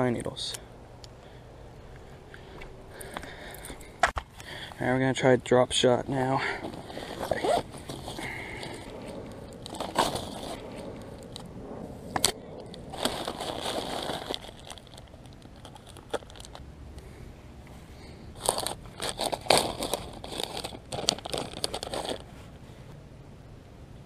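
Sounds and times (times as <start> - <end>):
plastic bags crinkling: 12.9 - 16.6, 18.4 - 22.4.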